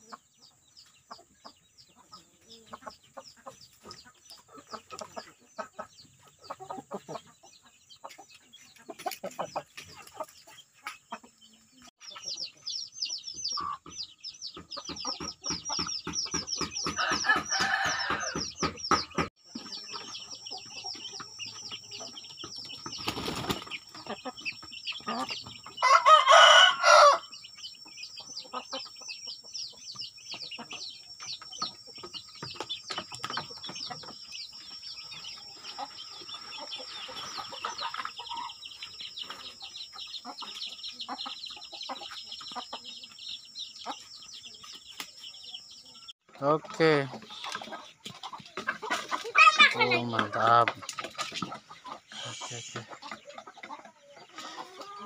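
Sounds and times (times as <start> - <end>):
chicks peeping: 0.0 - 55.0
hen clucking: 0.0 - 55.0
rooster crowing: 17.0 - 18.5, 25.8 - 27.3.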